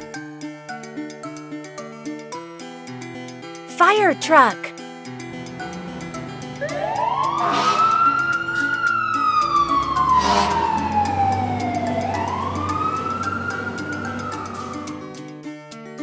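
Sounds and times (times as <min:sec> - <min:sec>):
background music: 0:03.7 - 0:04.7
fire engine siren wailing: 0:06.7 - 0:14.7.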